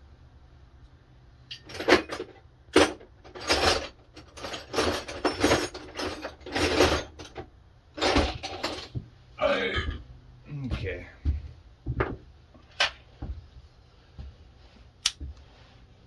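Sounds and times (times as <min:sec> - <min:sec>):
metal hand tools clattering: 0:01.5 - 0:07.4.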